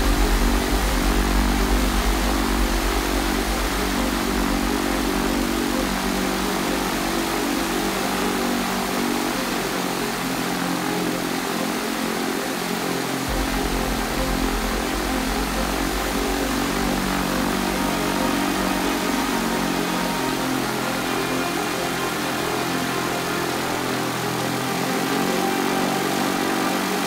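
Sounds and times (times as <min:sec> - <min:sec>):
propeller aircraft engine rumbling: 0:00.0 - 0:06.1, 0:13.3 - 0:18.4.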